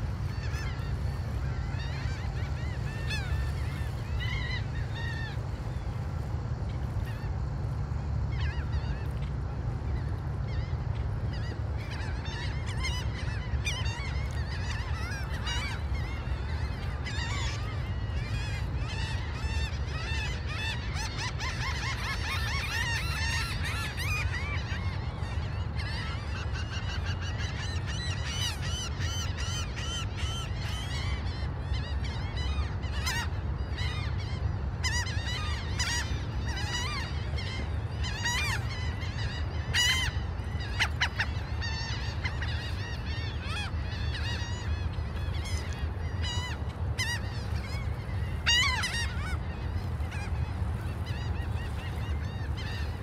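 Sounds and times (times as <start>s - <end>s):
steady low rumble: 0.0s - 20.9s
gulls calling: 0.0s - 53.0s.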